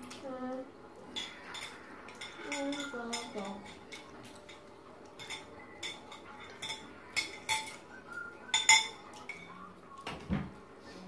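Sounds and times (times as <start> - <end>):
spoon clinking on ceramic bowl: 1.1 - 7.9, 8.5 - 9.6.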